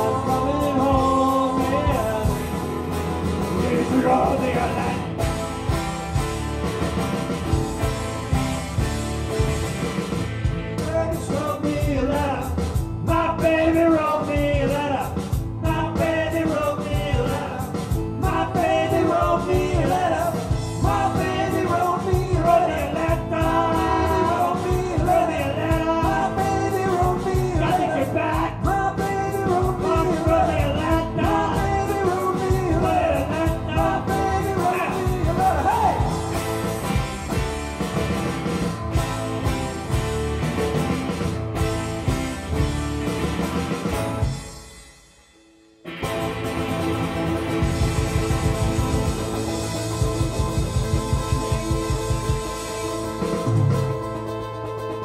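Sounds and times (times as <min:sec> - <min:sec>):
lead vocal singing: 0:00.0 - 0:05.1, 0:10.8 - 0:37.1
rock band playing live: 0:00.0 - 0:55.0.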